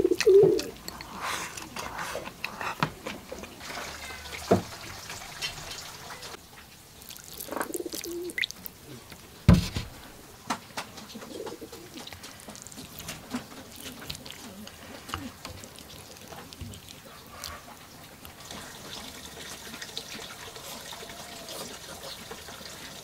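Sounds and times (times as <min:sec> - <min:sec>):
doves cooing: 0:00.0 - 0:02.7, 0:07.5 - 0:09.1, 0:11.0 - 0:18.7, 0:19.6 - 0:22.8
broth pouring over rice: 0:07.0 - 0:09.1, 0:11.9 - 0:17.6.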